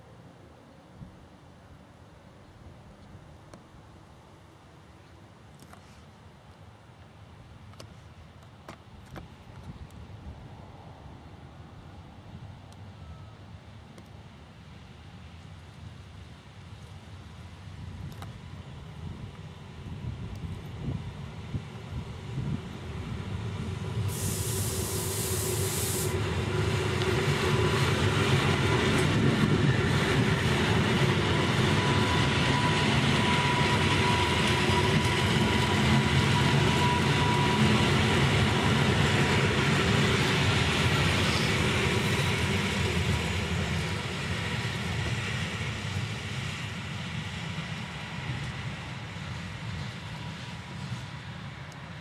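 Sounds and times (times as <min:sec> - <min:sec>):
train wheels rumbling on rails: 0:17.5 - 0:52.0
brief high hiss: 0:24.1 - 0:26.2.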